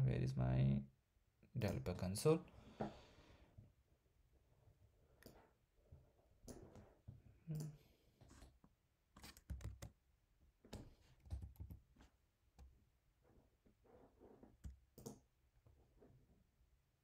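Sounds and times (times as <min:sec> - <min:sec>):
computer keyboard and mouse clicks: 0:09.2 - 0:10.0, 0:14.6 - 0:15.2.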